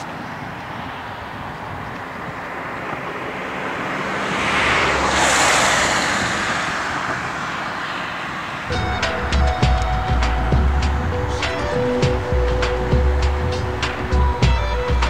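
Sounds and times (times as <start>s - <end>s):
vehicle passing: 0.0s - 15.0s.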